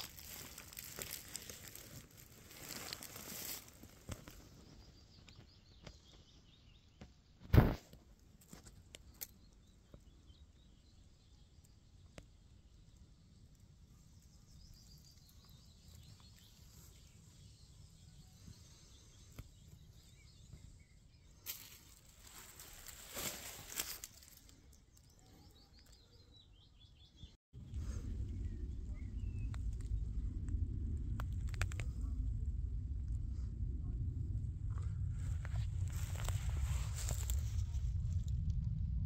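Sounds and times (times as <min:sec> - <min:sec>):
rustling in dry leaves: 0:00.0 - 0:04.7, 0:21.4 - 0:25.2, 0:35.4 - 0:38.0
faint low rumble: 0:00.0 - 0:05.7, 0:27.6 - 0:39.0.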